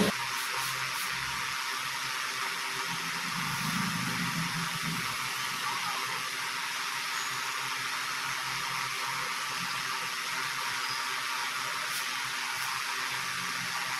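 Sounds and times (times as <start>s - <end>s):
electric fan air rush: 0.0s - 5.6s, 6.2s - 13.9s.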